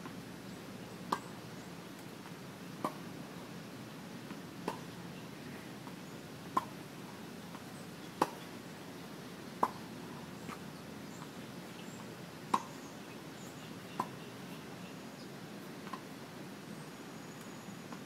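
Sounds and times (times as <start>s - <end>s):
faint steady hiss: 0.0s - 18.0s
tennis ball pops: 4.6s - 4.8s, 8.2s - 8.4s, 12.5s - 12.8s.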